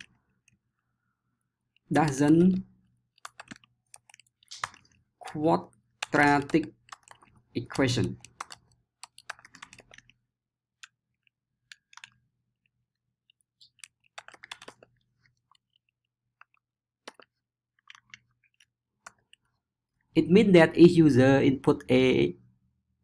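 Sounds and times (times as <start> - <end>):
keyboard keystrokes: 3.2 - 5.4, 6.0 - 10.1, 13.6 - 14.9.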